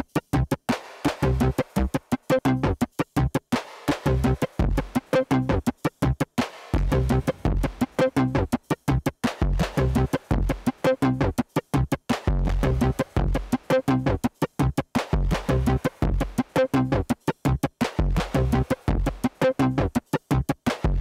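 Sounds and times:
stuttering electronic music: 0:04.0 - 0:21.0
deep bass notes: 0:04.1 - 0:06.2, 0:06.8 - 0:21.0.

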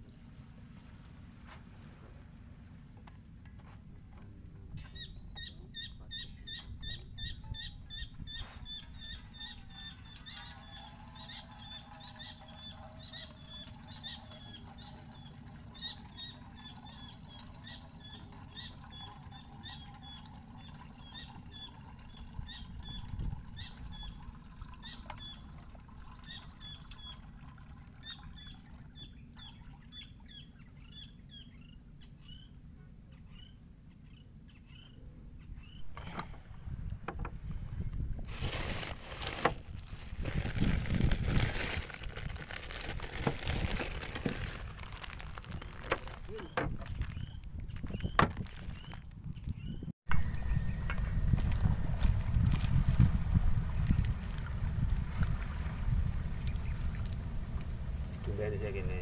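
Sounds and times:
bird chirping: 0:28.0 - 0:36.2.

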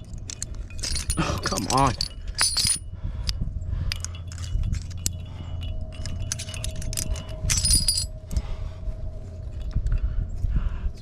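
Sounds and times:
carabiners clinking on chain: 0:00.0 - 0:08.4
low rumble: 0:00.0 - 0:11.0.

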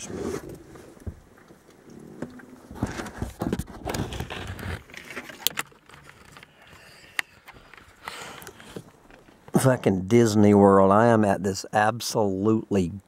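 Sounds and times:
camera handling rustling: 0:02.7 - 0:09.6.

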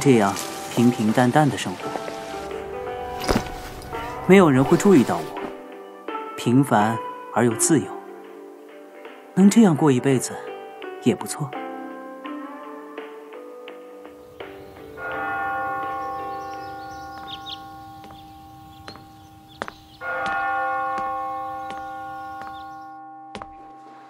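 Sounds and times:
school bell chime: 0:00.0 - 0:05.7, 0:14.6 - 0:24.0.

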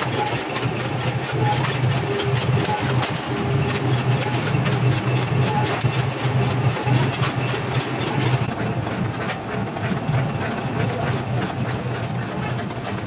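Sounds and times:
machine motor humming: 0:00.0 - 0:08.5.

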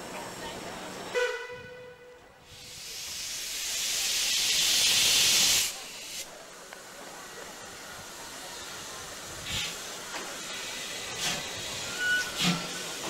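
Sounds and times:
locomotive steam hissing: 0:02.4 - 0:13.0
steam whistle: 0:11.8 - 0:12.6.

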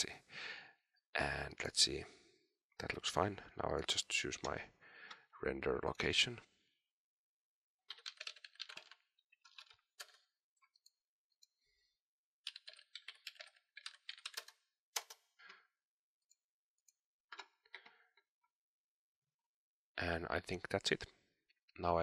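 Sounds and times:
faint keyboard typing: 0:07.9 - 0:10.9, 0:12.5 - 0:15.2.

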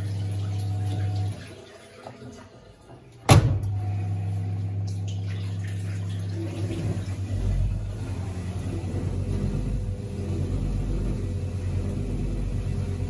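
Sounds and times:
washing machine humming: 0:00.0 - 0:13.0
washing machine lid banging shut: 0:03.3 - 0:03.8.

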